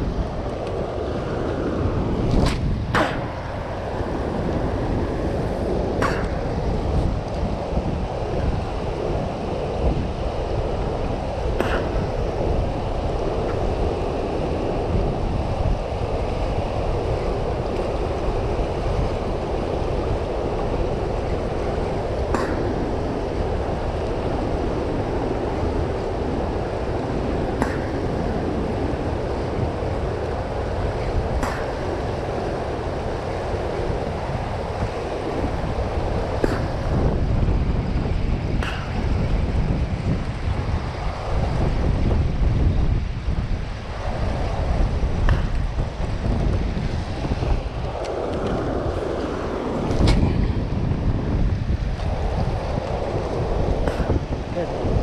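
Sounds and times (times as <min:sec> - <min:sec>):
churning water rushing: 0:00.0 - 0:55.0.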